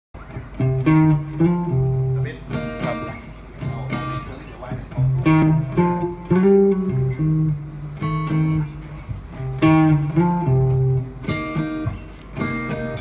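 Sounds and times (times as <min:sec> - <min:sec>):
bass guitar: 0:00.2 - 0:13.0
electric guitar riff: 0:00.2 - 0:13.0.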